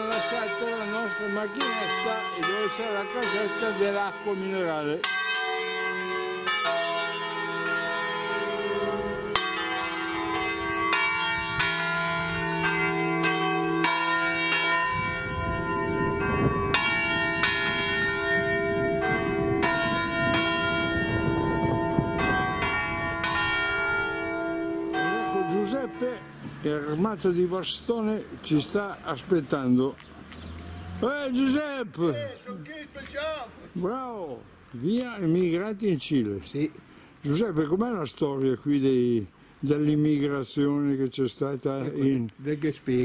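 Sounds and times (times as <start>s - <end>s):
church bells pealing: 0.0s - 29.8s.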